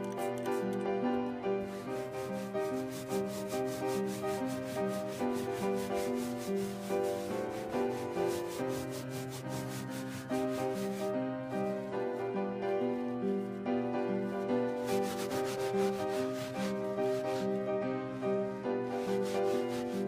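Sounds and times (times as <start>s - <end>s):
background music sustained notes: 0.0s - 20.0s
hand rubbing carpet: 1.6s - 11.8s, 14.7s - 17.6s, 18.8s - 20.0s.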